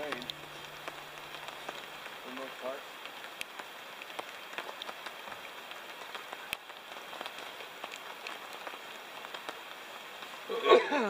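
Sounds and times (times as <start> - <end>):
raindrops ticking: 0.0 - 11.0
steady rain in forest: 0.0 - 11.0.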